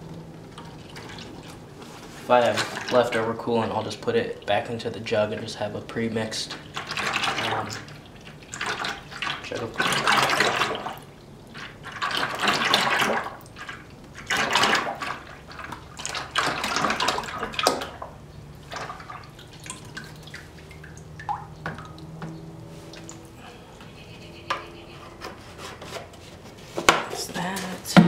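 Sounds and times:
liquid pouring into plastic bucket: 2.3s - 4.7s, 6.2s - 22.2s.

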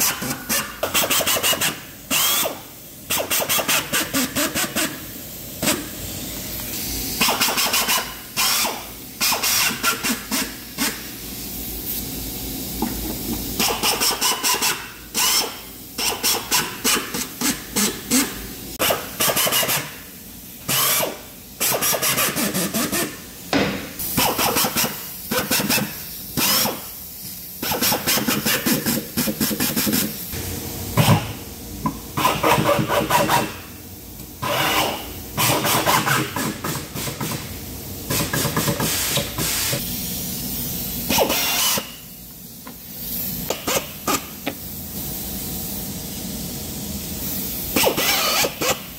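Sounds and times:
drill driving screws into wood: 1.2s - 2.6s, 41.1s - 41.8s, 47.8s - 48.7s.

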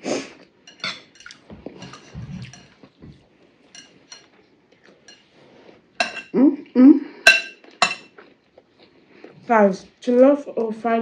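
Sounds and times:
metal spoons clinking on ceramic bowls: 0.7s - 2.8s, 3.7s - 4.3s, 6.0s - 6.4s, 7.2s - 8.1s.

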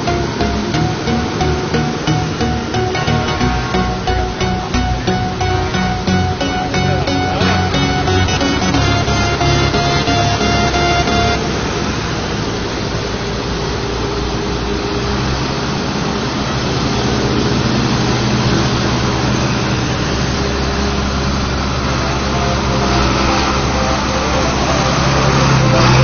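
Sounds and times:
tractor diesel engines passing: 0.0s - 26.0s.

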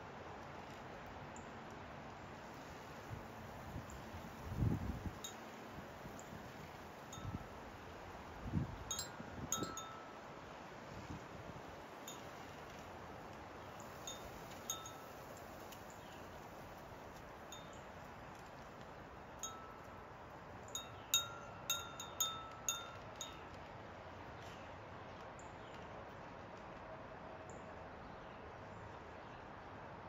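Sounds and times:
faint steady hiss: 0.0s - 26.9s
wind chime ringing: 8.9s - 10.1s, 20.8s - 23.4s.

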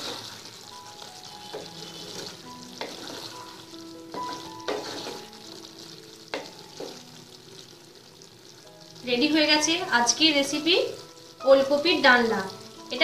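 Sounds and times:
spatula stirring thick curry: 0.0s - 7.0s
thick gravy sizzling softly: 0.0s - 13.0s
spatula scraping and knocking pan: 1.1s - 5.6s, 6.3s - 7.0s.

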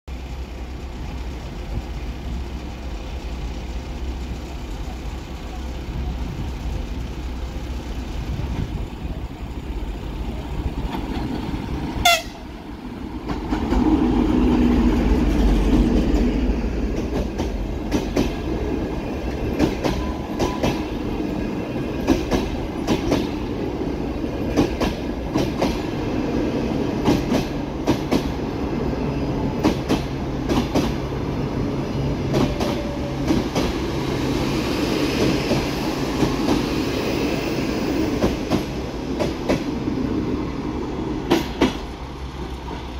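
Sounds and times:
locomotive engine rumble: 0.1s - 42.9s
train wheels clickety-clack: 10.3s - 12.4s, 13.0s - 40.0s, 41.1s - 42.9s.

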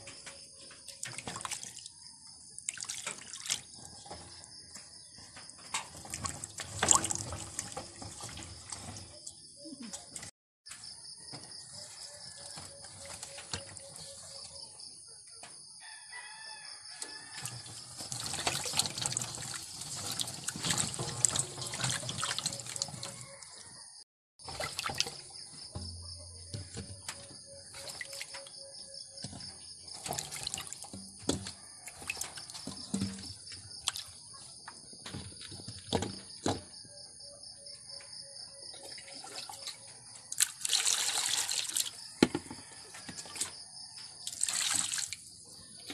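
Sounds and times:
water sloshing in metal basin: 0.0s - 10.3s, 16.9s - 34.4s, 38.8s - 45.8s.

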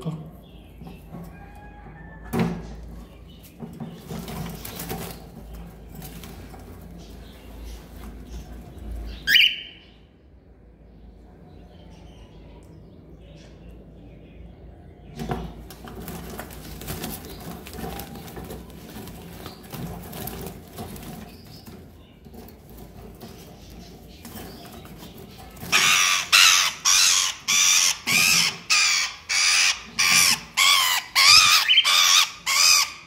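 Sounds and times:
hand rustling in wire cage: 15.7s - 26.3s
cockatiel screeching: 25.7s - 33.0s.

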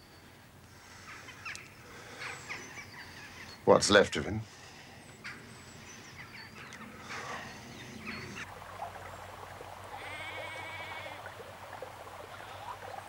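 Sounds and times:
sheep bleating: 10.0s - 11.2s.

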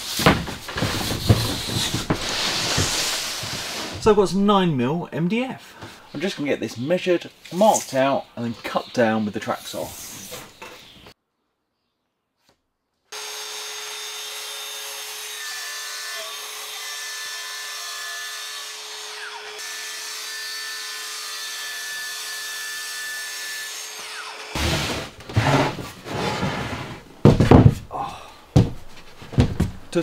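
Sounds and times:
track saw cutting: 13.2s - 25.6s.

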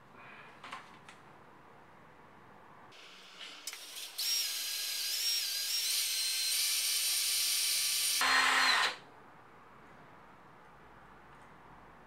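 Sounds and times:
cordless drill whining: 4.2s - 9.0s.

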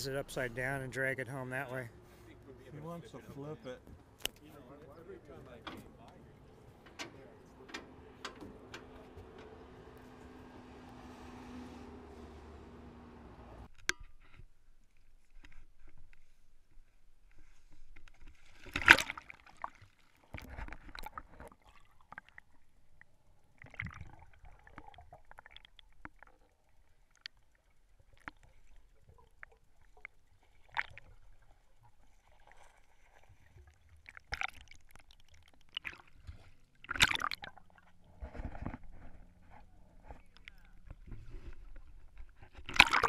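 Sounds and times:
faint muffled water noise: 14.4s - 43.0s
water splashing: 18.2s - 38.2s, 42.6s - 43.0s.

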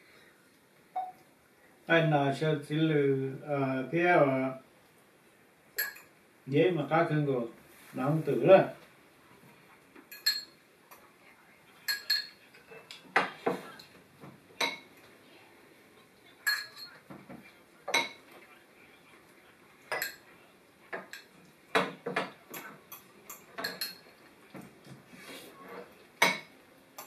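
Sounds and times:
cutlery clinking on ceramic bowls: 5.8s - 6.1s, 10.1s - 11.0s, 11.9s - 13.9s, 14.6s - 14.9s, 16.4s - 17.0s, 17.9s - 18.2s, 19.9s - 20.3s, 20.9s - 24.2s, 25.7s - 27.0s.

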